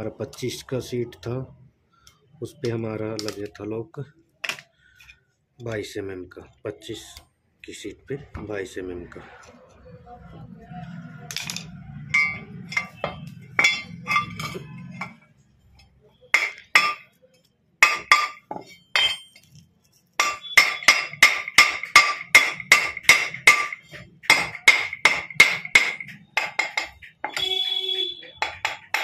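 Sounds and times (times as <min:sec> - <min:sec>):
hammer striking steel ringing: 0:11.5 - 0:15.2, 0:16.3 - 0:17.1, 0:17.8 - 0:19.4, 0:20.2 - 0:29.0.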